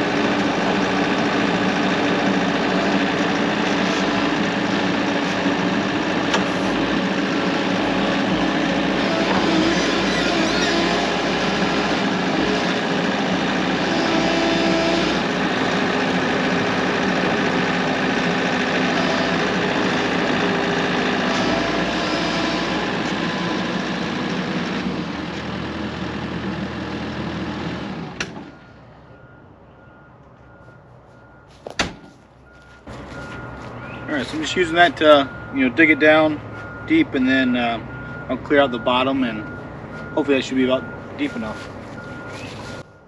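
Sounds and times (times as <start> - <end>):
diesel engine running under load: 0.0 - 43.0.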